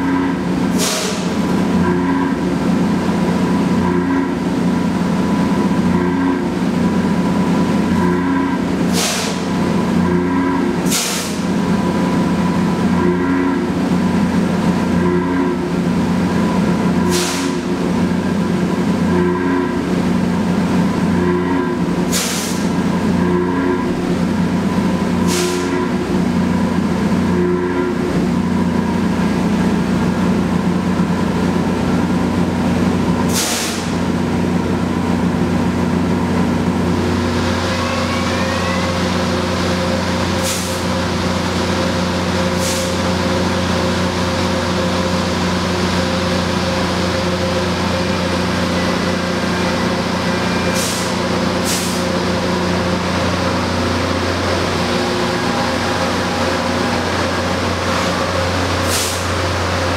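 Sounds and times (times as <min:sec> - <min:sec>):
rail grinder mechanical drone: 0:00.0 - 0:59.9.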